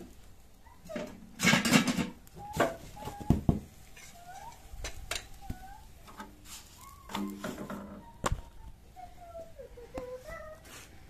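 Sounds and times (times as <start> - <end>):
cooking utensils knocking and clinking: 1.4 - 2.8
faint high wavering cries: 4.0 - 6.1, 6.7 - 10.8.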